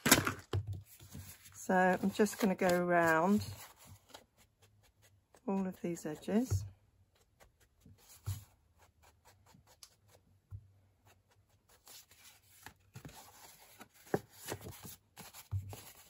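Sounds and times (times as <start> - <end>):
paper pages being handled: 0.0 - 5.7, 11.6 - 16.0.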